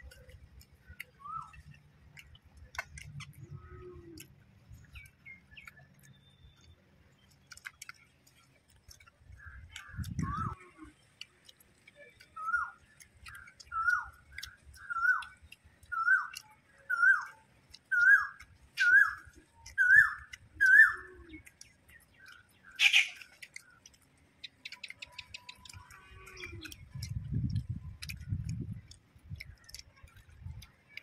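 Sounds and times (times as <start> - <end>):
bird whistled call: 17.9 - 21.1, 22.8 - 23.2.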